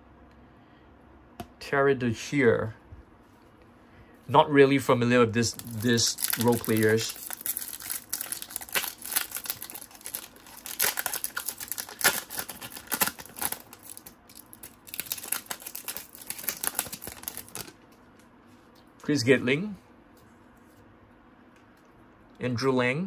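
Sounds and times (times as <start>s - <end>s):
foil wrapper crinkling and tearing: 5.4s - 17.8s.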